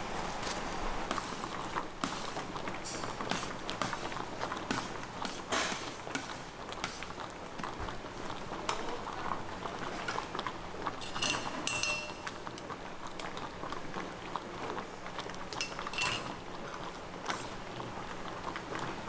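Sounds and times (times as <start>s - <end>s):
sauce bubbling on griddle: 1.0s - 19.0s
metal utensils clinking and scraping: 11.0s - 12.5s, 15.6s - 16.4s.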